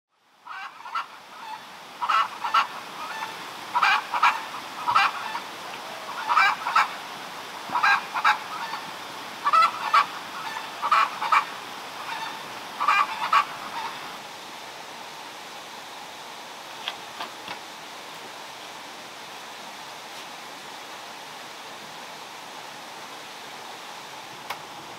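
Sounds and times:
steady rushing hiss: 0:00.2 - 0:24.9
geese honking: 0:00.5 - 0:07.0, 0:07.7 - 0:14.1.

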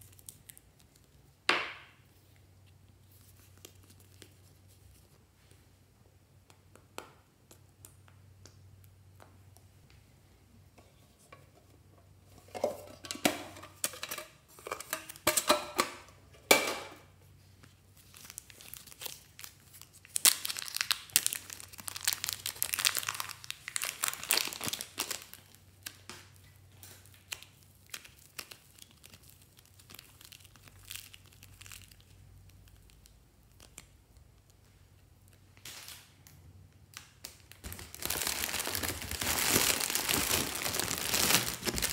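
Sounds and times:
plastic bag crinkling: 0:18.0 - 0:25.6, 0:26.8 - 0:33.8, 0:37.4 - 0:41.9.

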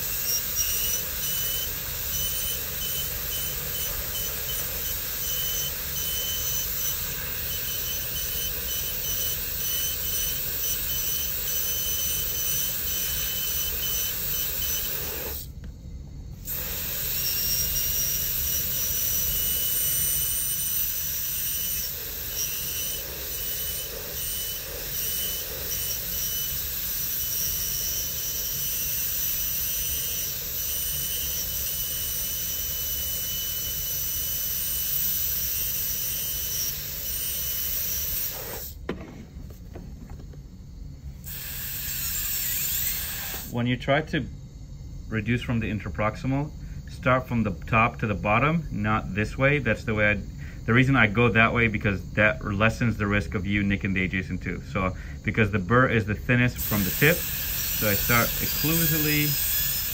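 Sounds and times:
dental drill whine: 0:00.0 - 0:15.6, 0:16.3 - 0:38.8, 0:41.2 - 0:43.6, 0:52.6 - 0:59.9.

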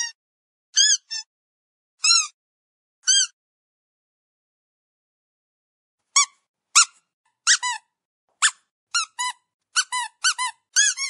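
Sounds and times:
squeaky dog toy squeaks: 0:00.8 - 0:01.3, 0:02.0 - 0:02.4, 0:03.0 - 0:03.4, 0:06.1 - 0:11.0.

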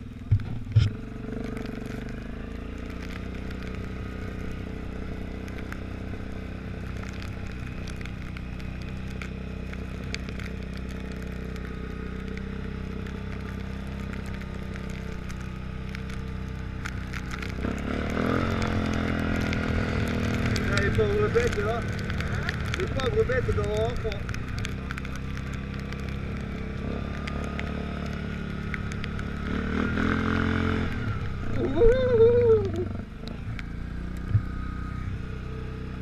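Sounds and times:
quad bike engine running: 0:00.0 - 0:36.0.

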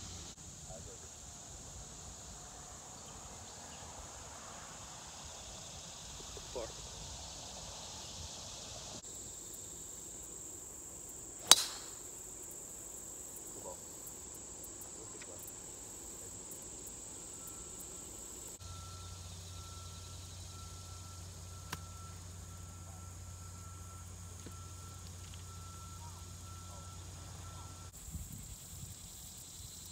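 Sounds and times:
insects droning: 0:00.0 - 0:29.9
golf club striking ball: 0:11.4 - 0:12.1.

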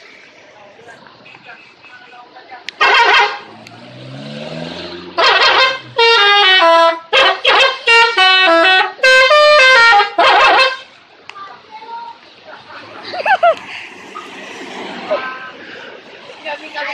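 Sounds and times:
loud noisy horn blasts: 0:02.8 - 0:03.6, 0:04.9 - 0:10.9
musical car horn tune: 0:02.8 - 0:03.6, 0:05.0 - 0:10.9.

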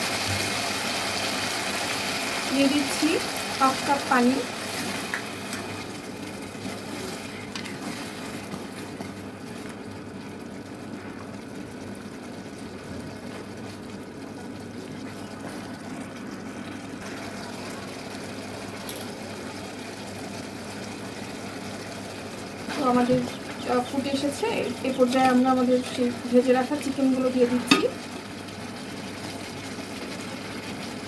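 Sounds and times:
sauce bubbling in a pan: 0:00.0 - 0:31.0.

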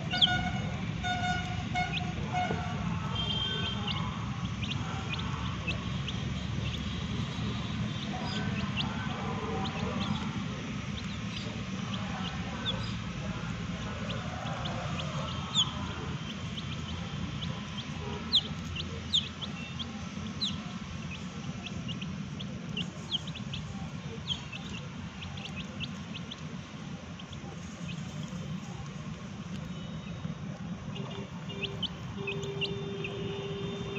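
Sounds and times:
chicks peeping: 0:00.0 - 0:33.9
low background hum: 0:00.0 - 0:33.9.

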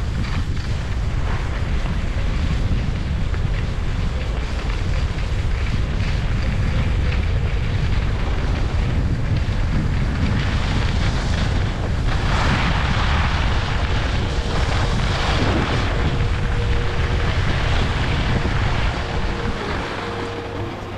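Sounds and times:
skis scraping over snow: 0:00.0 - 0:20.9
wind rumbling on microphone: 0:00.0 - 0:20.9.

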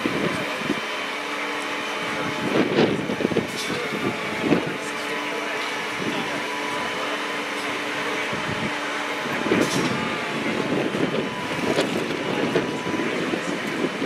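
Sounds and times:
diesel truck engine running: 0:00.0 - 0:14.0.

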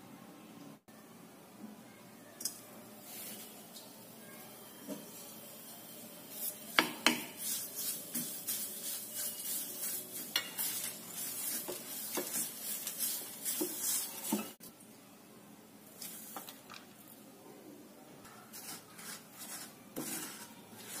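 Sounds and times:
light sizzle: 0:02.4 - 0:15.0, 0:15.8 - 0:17.3
wooden spatula scraping a pan: 0:06.3 - 0:14.6, 0:18.3 - 0:21.0.

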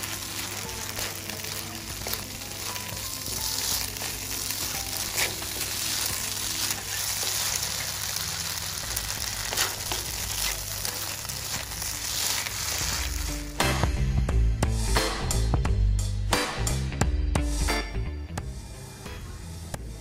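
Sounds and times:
spatula scraping pan: 0:00.0 - 0:13.4
noodles sizzling in pan: 0:00.0 - 0:13.9.

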